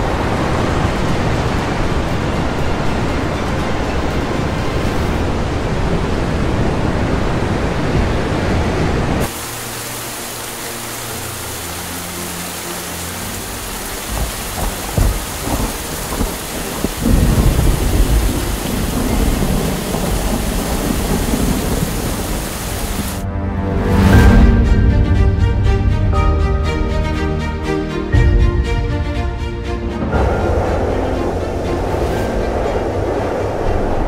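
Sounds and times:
sea surf breaking on shore: 0.0 - 23.2
steady rain hiss: 0.0 - 23.2
thunder rumbling: 14.0 - 23.2, 30.0 - 34.0.

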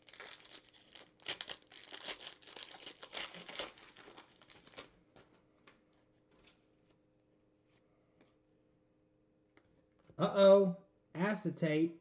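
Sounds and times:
foil wrapper crinkling and tearing: 0.0 - 5.3.

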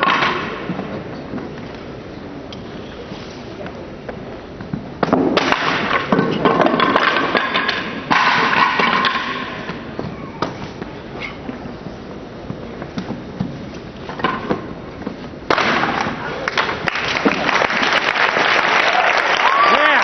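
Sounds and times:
crowd cheering and clapping: 16.2 - 20.0.

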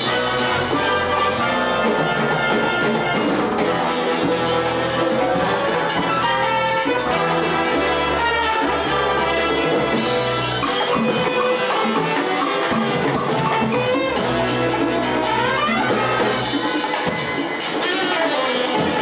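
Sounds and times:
horn section: 0.0 - 19.0
timbales and congas: 0.0 - 19.0.

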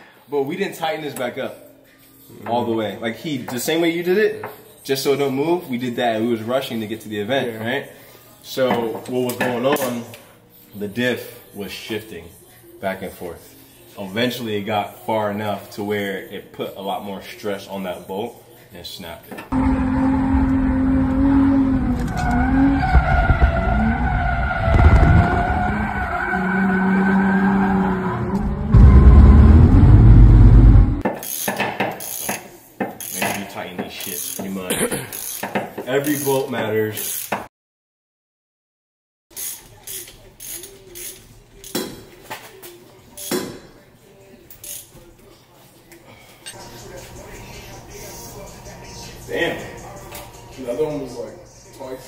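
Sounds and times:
car engine revving: 19.5 - 31.0
tyre squeal: 19.6 - 29.5
ratchet wrench clicking: 31.2 - 32.4, 33.0 - 33.4, 34.0 - 34.5, 35.1 - 36.4, 37.0 - 37.4, 39.4 - 41.8, 44.6 - 44.9.

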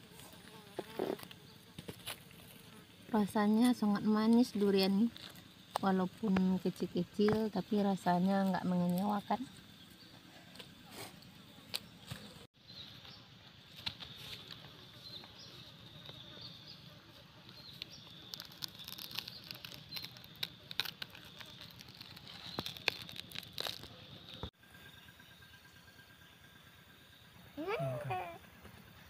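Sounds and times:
insects chirping: 0.0 - 12.4, 13.7 - 29.0
fruit husk cracking: 3.5 - 9.6, 17.6 - 24.5.

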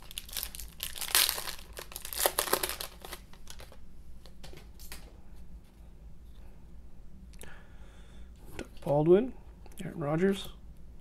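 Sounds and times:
plastic wrapper crinkling: 0.0 - 3.8.

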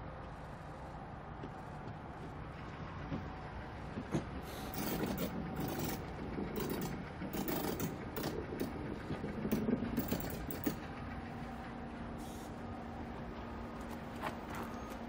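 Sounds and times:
tram wheels on rails: 0.0 - 15.0
wheels scraping and clicking: 4.0 - 11.2, 13.4 - 15.0.

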